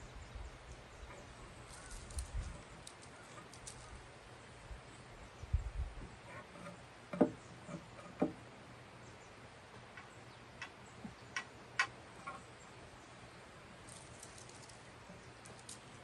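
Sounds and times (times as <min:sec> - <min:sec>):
pencil tapping on wood board: 0:07.1 - 0:07.4, 0:08.2 - 0:08.4.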